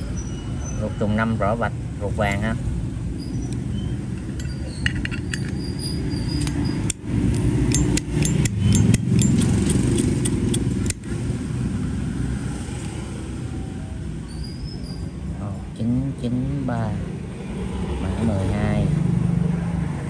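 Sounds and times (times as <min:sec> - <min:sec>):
low rumble of traffic: 0:00.0 - 0:20.0
lighter metal clicks and clinks: 0:06.3 - 0:11.1.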